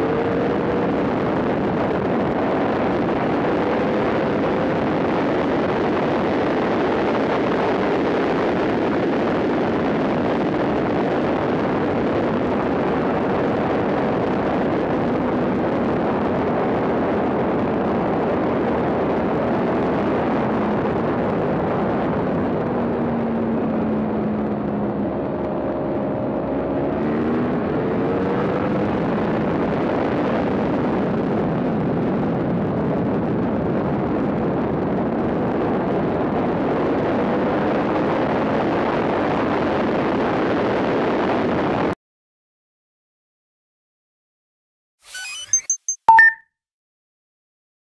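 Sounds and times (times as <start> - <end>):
motorcycle engine racing: 0.0 - 7.6, 19.0 - 31.1
wind rush on microphone: 0.0 - 42.0.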